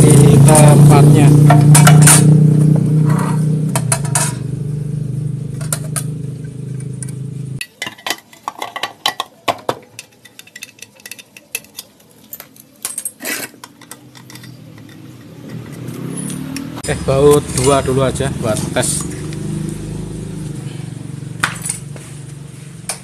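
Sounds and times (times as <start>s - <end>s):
engine running: 0.0s - 7.6s, 14.5s - 23.0s.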